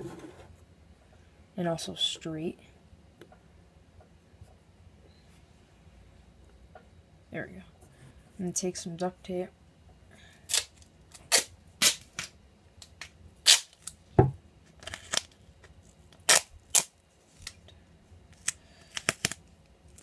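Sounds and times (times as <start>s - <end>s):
duct tape ripping: 10.5s - 12.4s, 13.0s - 14.0s, 14.8s - 15.4s, 16.1s - 17.6s, 18.3s - 20.0s.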